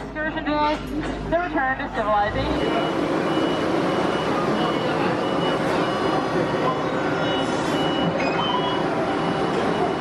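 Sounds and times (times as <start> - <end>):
loud background din: 0.0 - 10.0
short high electronic beeps: 2.6 - 10.0.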